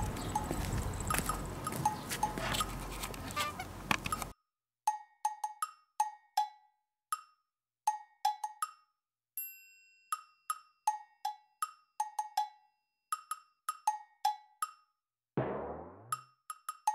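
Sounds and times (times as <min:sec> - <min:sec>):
bell-like chime: 0:09.4 - 0:10.5.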